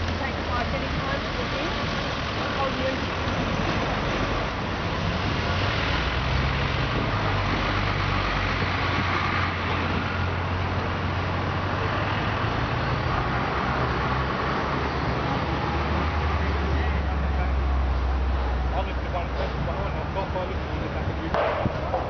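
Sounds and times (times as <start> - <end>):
heavy vehicle engine hum: 0.0 - 22.0
passing cars and tyre noise: 0.0 - 22.0.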